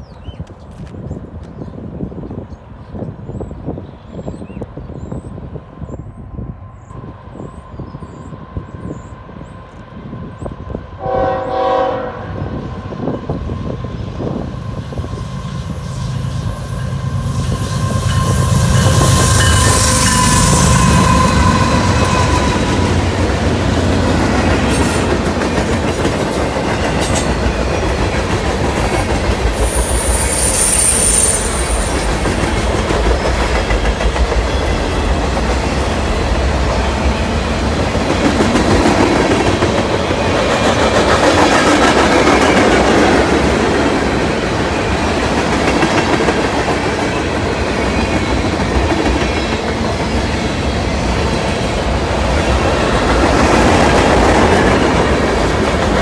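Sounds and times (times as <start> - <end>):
train wheel squeal: 3.3 - 23.4, 26.0 - 37.4.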